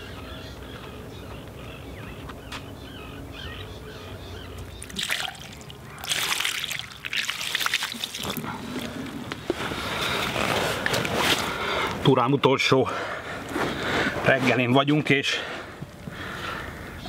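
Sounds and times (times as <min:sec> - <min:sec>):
water pouring and splashing: 0:04.8 - 0:09.2.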